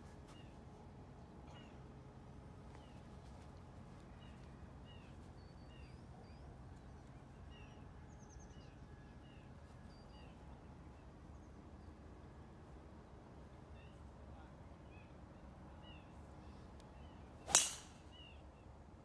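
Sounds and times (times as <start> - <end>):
low background hum: 0.0 - 19.0
faint bird chirps: 1.4 - 1.9.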